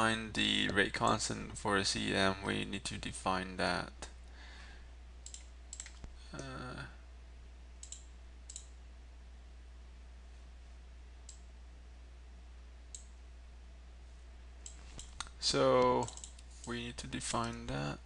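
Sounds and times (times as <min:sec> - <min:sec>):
low electrical hum: 0:00.0 - 0:18.0
computer mouse clicks: 0:05.2 - 0:06.5, 0:07.8 - 0:08.7, 0:12.9 - 0:13.1, 0:14.6 - 0:16.5.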